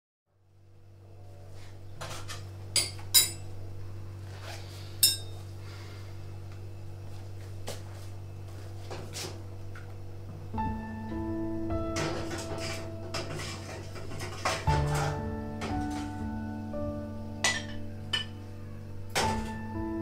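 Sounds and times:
tableware clinking: 0:02.8 - 0:03.5, 0:05.0 - 0:05.4, 0:12.0 - 0:16.2, 0:17.4 - 0:18.4.

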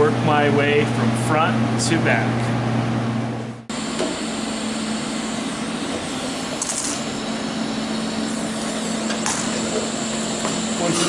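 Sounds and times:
steady low hum: 0:00.0 - 0:11.0
welding arc crackling: 0:03.7 - 0:11.0.

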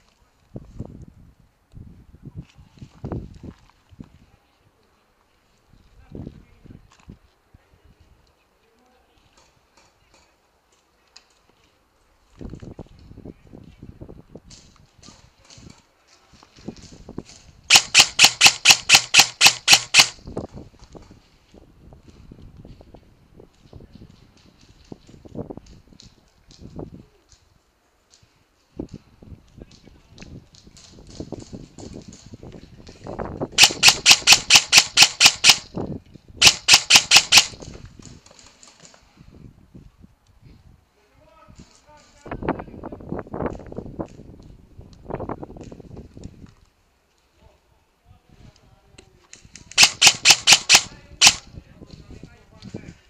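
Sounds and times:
gear clicking and rustling: 0:14.5 - 0:21.2, 0:29.8 - 0:35.7, 0:36.4 - 0:39.0, 0:49.3 - 0:51.4
airsoft rifle firing shots: 0:17.7 - 0:20.2, 0:33.6 - 0:35.7, 0:36.4 - 0:37.6, 0:49.8 - 0:51.4.

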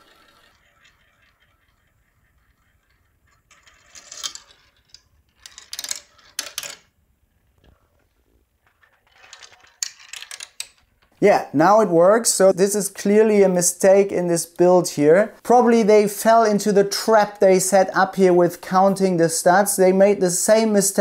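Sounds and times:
marble rattling clatters: 0:00.0 - 0:11.2
marble rolling on plastic track: 0:00.0 - 0:11.2.

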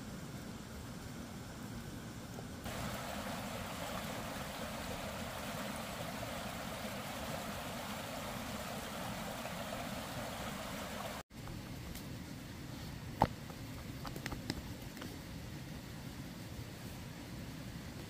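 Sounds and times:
stream rushing over rocks: 0:02.7 - 0:11.2.

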